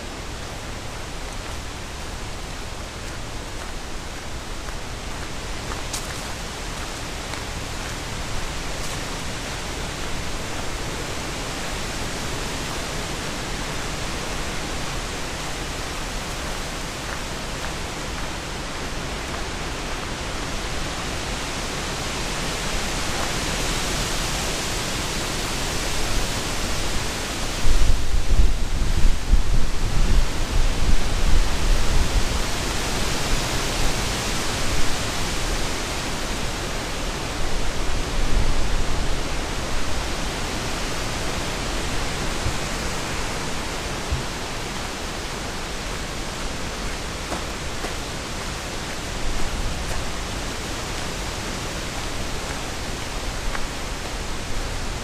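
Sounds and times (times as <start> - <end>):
wind buffeting microphone: 26.7 - 35.5.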